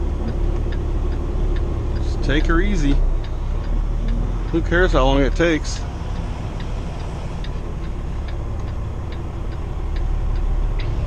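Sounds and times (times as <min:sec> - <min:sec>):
diesel engine running: 0:00.0 - 0:11.0.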